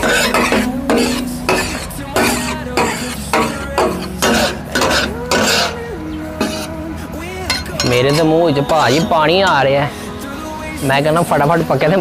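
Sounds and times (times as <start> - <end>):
metal spatulas scraping on griddle: 0.0 - 5.8, 6.4 - 6.8, 7.5 - 9.8.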